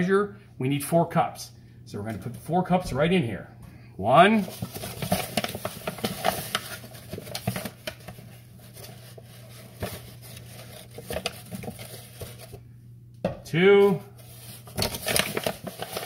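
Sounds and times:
paper bag rustling: 4.3 - 12.6, 14.1 - 16.0.

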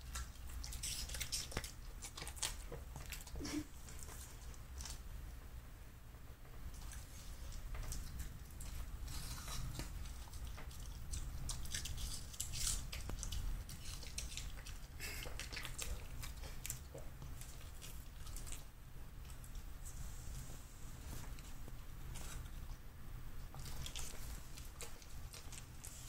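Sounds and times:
dog crunching apple: 0.0 - 5.0, 6.7 - 19.7, 23.5 - 26.0.

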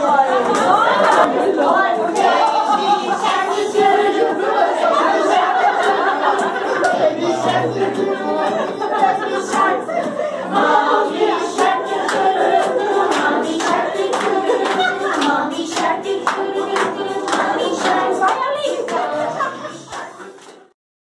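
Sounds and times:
group of people singing: 0.0 - 20.7
hand claps: 11.6 - 19.1, 19.9 - 20.7.

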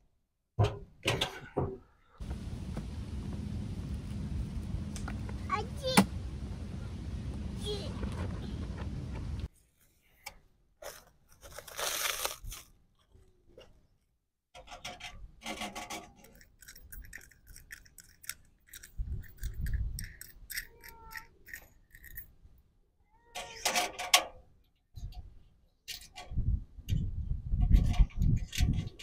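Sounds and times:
low rumble: 2.2 - 9.5.

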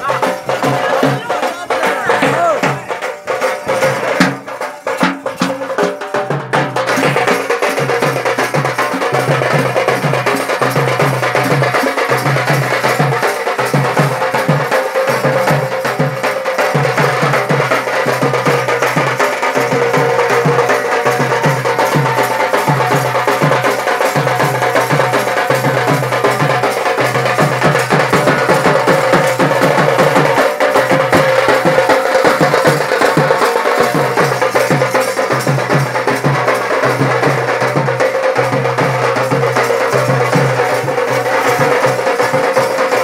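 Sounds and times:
loud folk music with fast drumming: 0.0 - 43.0.

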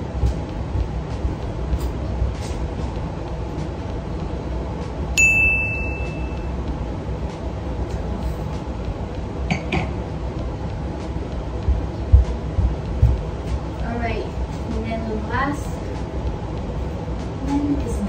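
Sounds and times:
low background rumble: 0.0 - 18.0
bright bell-like ding: 5.2 - 6.5.

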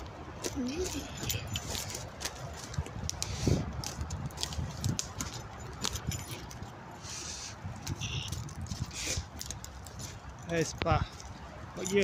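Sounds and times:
footsteps crunching through twigs: 0.0 - 6.7, 7.6 - 12.0
sticks snapping: 3.0 - 5.9.

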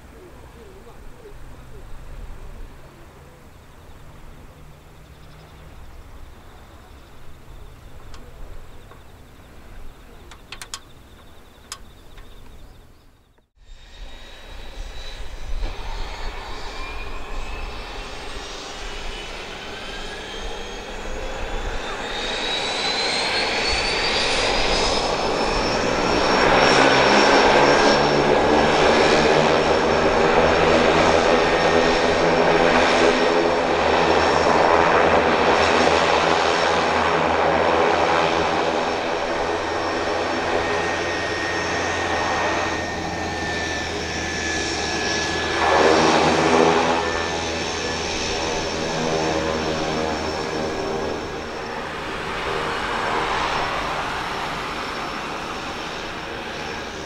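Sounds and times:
propeller idling: 0.0 - 13.1, 17.4 - 57.0
turboprop engine whine: 0.0 - 57.0.

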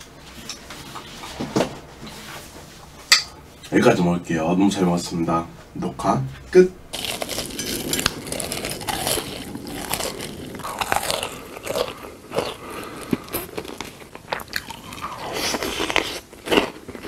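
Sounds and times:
chewing: 6.9 - 17.0
crunchy food being bitten: 6.9 - 17.0.

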